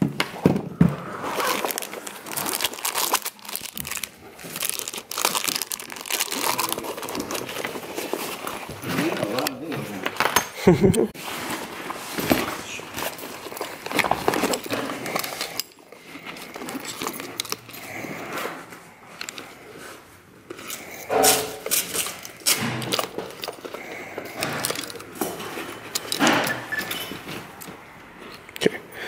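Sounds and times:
camera bag rustling: 0.6s - 10.1s, 11.2s - 21.0s
metal strap clips jingling: 25.8s - 27.2s.

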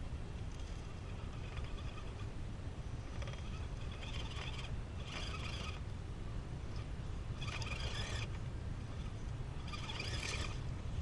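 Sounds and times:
electric drivetrain whir: 0.0s - 11.0s
tyres scrabbling on rock: 3.0s - 5.9s, 6.7s - 10.6s.

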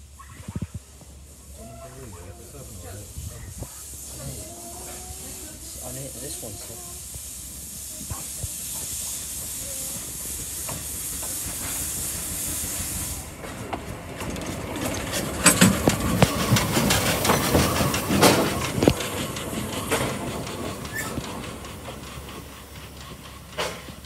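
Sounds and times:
steam hissing: 0.8s - 24.0s
locomotive metallic clanks and knocks: 13.4s - 24.0s.

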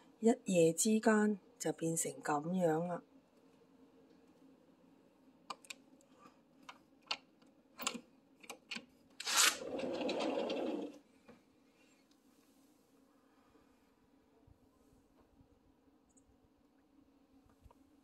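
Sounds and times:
glass door sliding on track: 9.2s - 11.0s.

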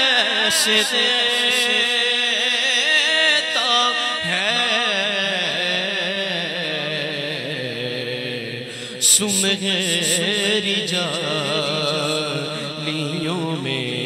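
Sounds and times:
man singing into a microphone: 0.0s - 14.0s.

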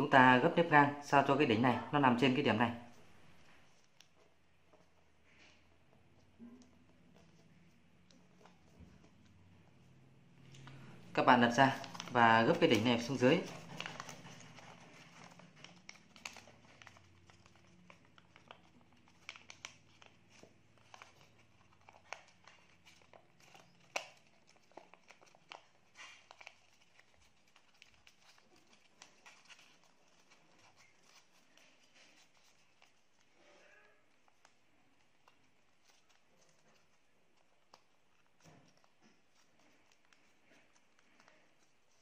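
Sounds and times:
paper rustling and crackling: 10.6s - 42.0s.

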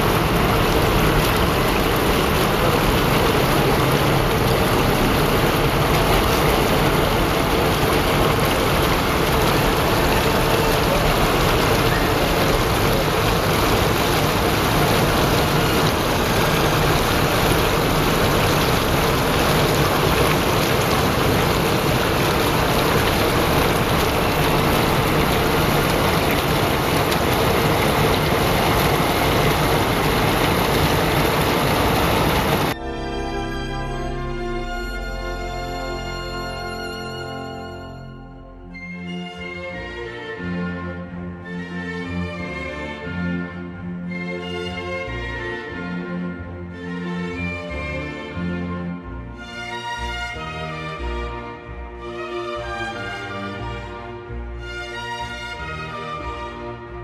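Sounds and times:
fountain water splashing: 0.0s - 37.9s.

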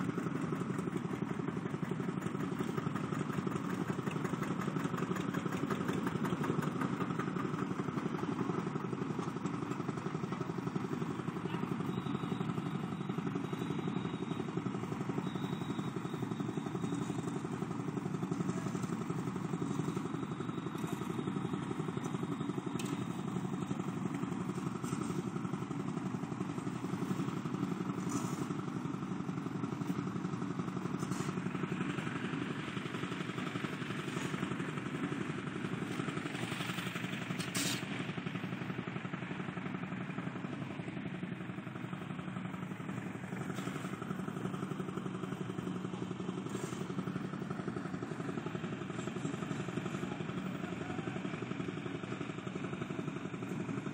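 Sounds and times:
vehicle engine running: 0.0s - 53.9s.

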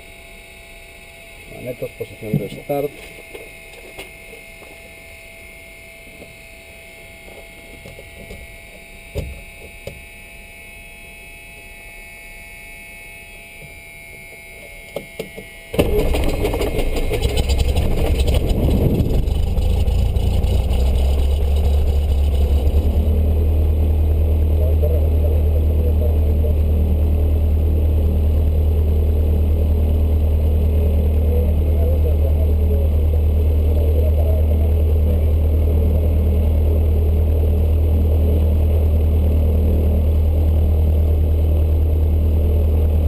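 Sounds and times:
plane engine starting and idling: 13.5s - 43.0s.

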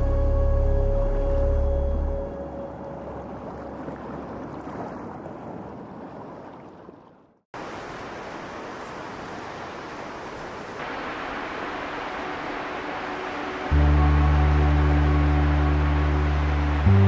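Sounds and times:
river water rushing: 7.6s - 17.0s.

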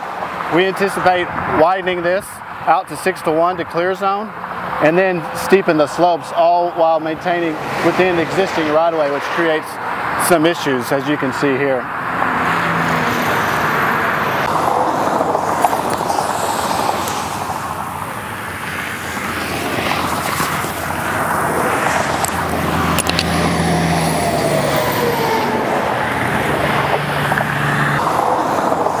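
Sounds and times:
traffic passing at speed: 0.0s - 29.0s
heavy truck engine drone: 11.4s - 29.0s.

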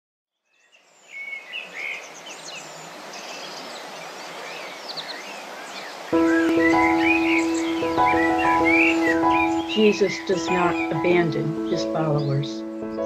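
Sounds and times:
birds chirping and singing: 0.4s - 13.0s
outdoor background hiss: 0.4s - 13.0s
music with held chords: 6.2s - 13.0s.

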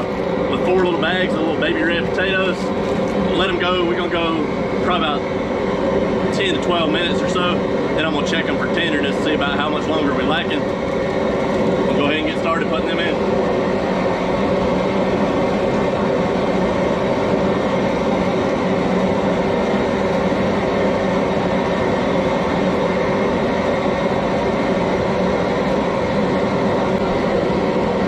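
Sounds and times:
pot boiling over burner roar: 0.0s - 28.0s.

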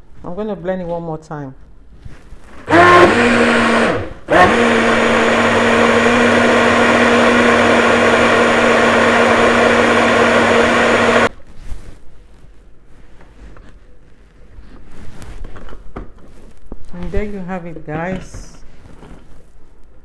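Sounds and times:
blender motor running: 2.6s - 11.3s.

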